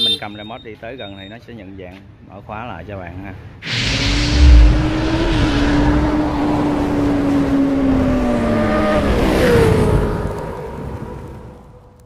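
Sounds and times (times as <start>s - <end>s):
whoosh: 3.6s - 8.4s.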